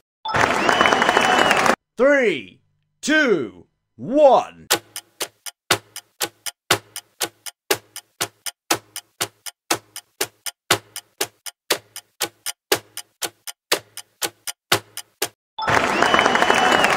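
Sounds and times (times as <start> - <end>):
clock ticking: 4.3 - 15.4.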